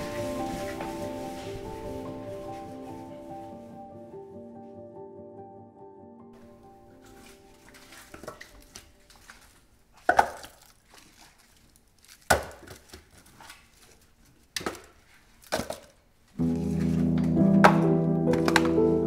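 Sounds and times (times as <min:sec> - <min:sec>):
wood clatter and rustling: 0:07.0 - 0:18.8.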